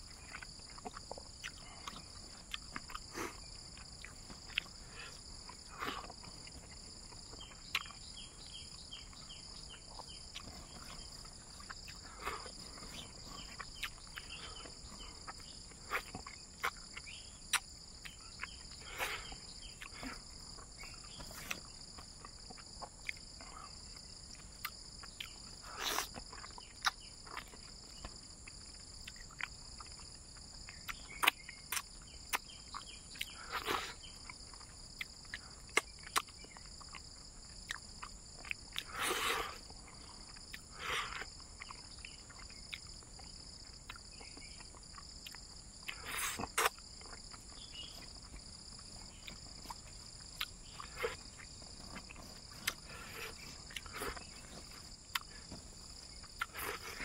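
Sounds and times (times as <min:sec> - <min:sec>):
chewing and lip smacking: 0:00.0 - 0:57.0
insects trilling: 0:00.0 - 0:57.0.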